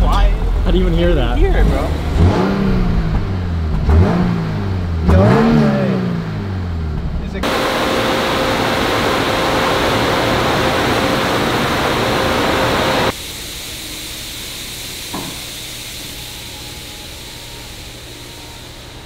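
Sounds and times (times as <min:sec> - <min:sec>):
car engine running: 0:00.0 - 0:13.1.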